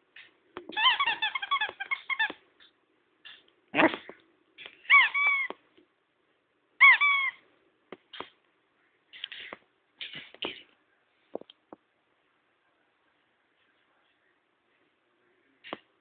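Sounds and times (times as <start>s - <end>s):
dog toy squeaking: 0.7s - 2.4s, 4.8s - 5.5s, 6.8s - 7.4s.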